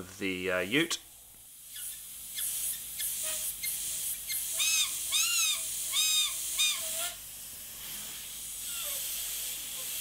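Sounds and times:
airbrush hissing: 1.5s - 10.0s
short whistle-like squeaks: 1.7s - 7.0s.

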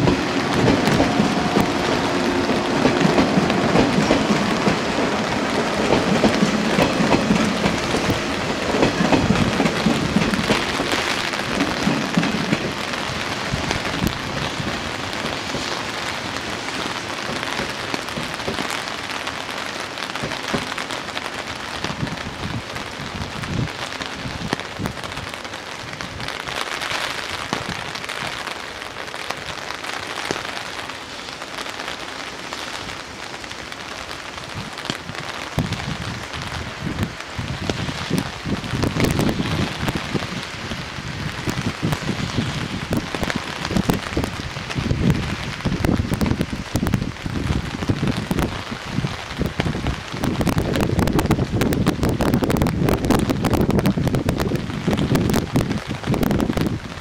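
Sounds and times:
electric train running: 0.0s - 15.7s
steady rain hissing: 0.0s - 57.0s.

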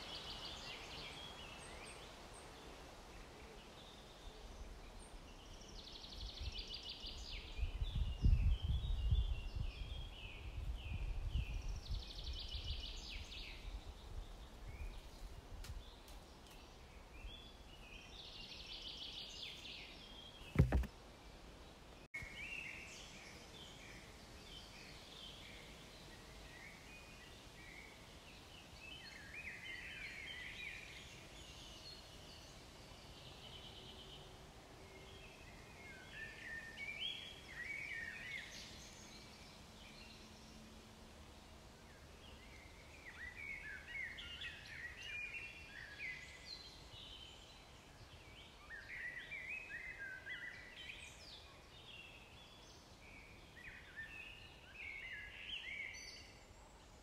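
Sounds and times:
small songbirds singing: 0.0s - 57.0s
low wind rumble: 7.4s - 16.0s
sharp thump: 20.5s - 20.9s.

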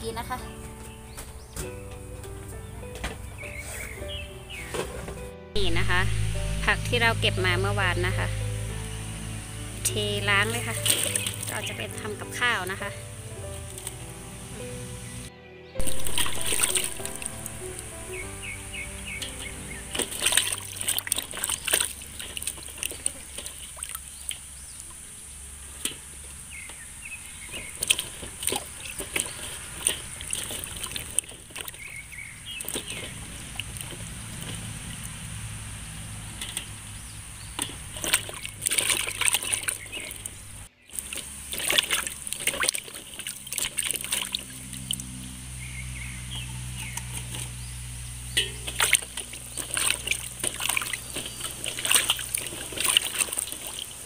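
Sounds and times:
water splashing in metal basin: 4.6s - 15.2s, 15.8s - 54.0s
steady high hiss: 5.7s - 10.2s, 13.0s - 20.1s.

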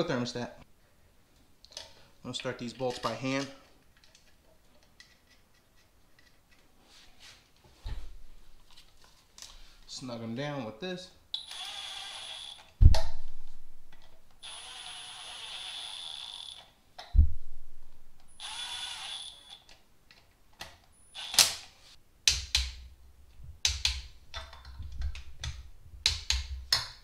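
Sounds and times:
cordless tool whirring: 11.4s - 12.7s, 14.4s - 16.7s, 18.3s - 19.6s.

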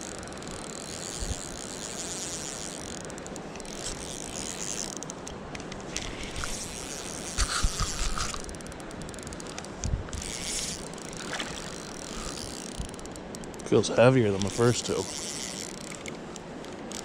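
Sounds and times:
fishing reel whirring clicks: 0.0s - 17.0s
creek water rushing: 10.4s - 16.9s.

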